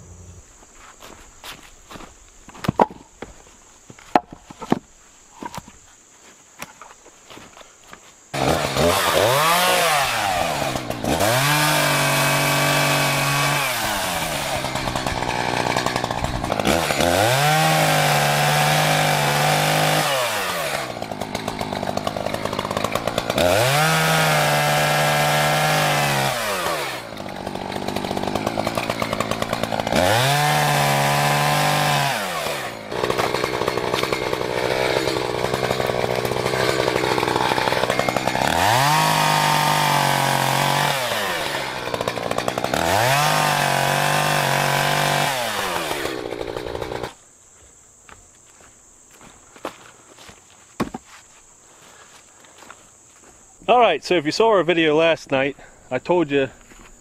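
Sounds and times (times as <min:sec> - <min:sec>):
chainsaw revving and cutting: 0:08.3 - 0:47.2.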